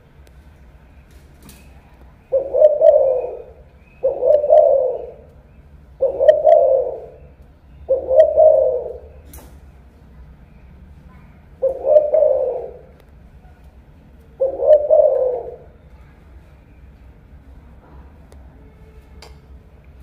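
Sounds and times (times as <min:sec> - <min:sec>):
dove cooing: 0:02.2 - 0:05.4, 0:06.0 - 0:09.3, 0:11.6 - 0:13.0, 0:14.3 - 0:15.8.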